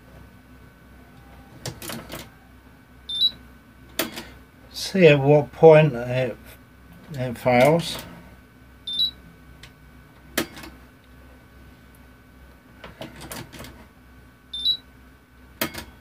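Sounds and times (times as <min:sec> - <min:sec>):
short high beeps: 0:03.1 - 0:03.4, 0:08.9 - 0:09.2, 0:14.6 - 0:14.8.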